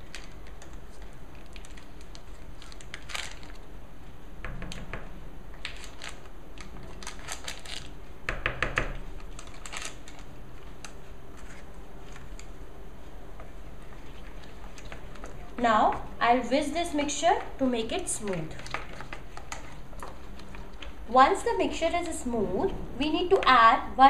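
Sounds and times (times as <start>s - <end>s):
paper wrapper crinkling: 0.0s - 3.7s, 5.6s - 8.0s, 9.1s - 12.6s.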